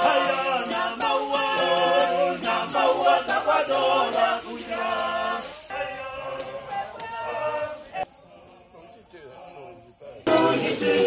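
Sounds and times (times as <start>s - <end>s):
group of people singing: 0.0s - 11.0s
hand shaker beat: 0.0s - 11.0s.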